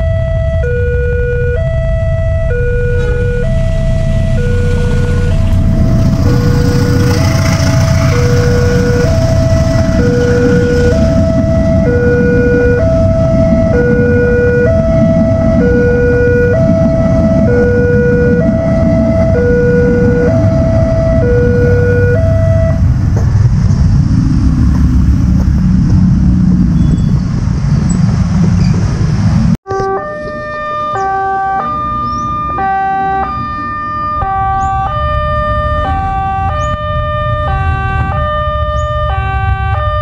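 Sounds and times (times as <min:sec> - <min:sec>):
two-tone level crossing alarm: 0:00.0 - 0:22.8, 0:29.7 - 0:40.0
train rumbling on rails: 0:01.8 - 0:29.6
motorcycle engines pulling away: 0:02.5 - 0:40.0.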